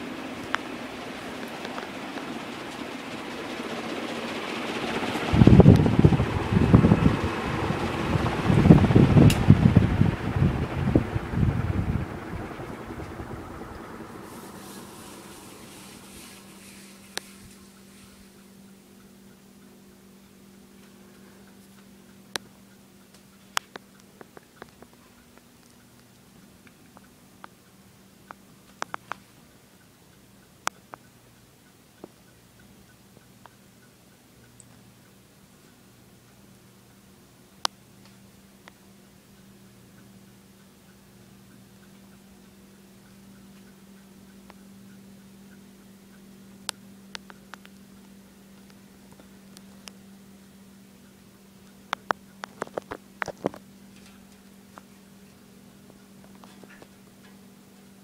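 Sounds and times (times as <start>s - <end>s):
ceiling fan motor humming: 0.0s - 58.0s
faint light ticking: 18.4s - 58.0s.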